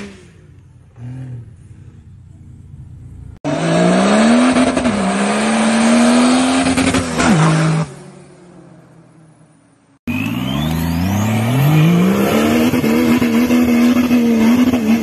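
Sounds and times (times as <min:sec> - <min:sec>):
fainter engine sound: 0:00.0 - 0:03.4
car engine accelerating hard: 0:10.1 - 0:15.0.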